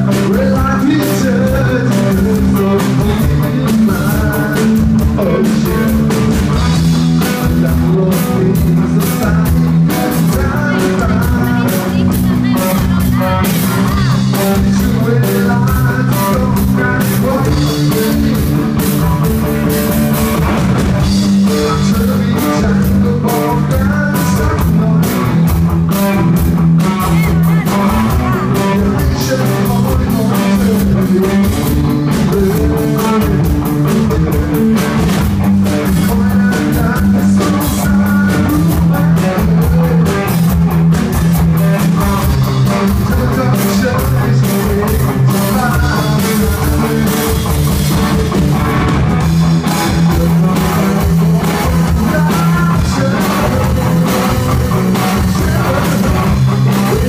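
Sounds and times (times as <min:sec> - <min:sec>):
electric guitar: 0:00.0 - 0:57.0
live rock band playing: 0:00.0 - 0:57.0.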